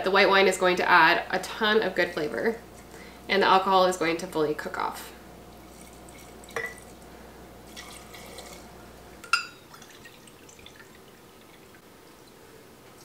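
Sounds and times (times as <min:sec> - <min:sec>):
wine pouring into a metal cup: 0:05.5 - 0:07.1, 0:07.7 - 0:12.4
glass clinking on metal: 0:09.2 - 0:09.7.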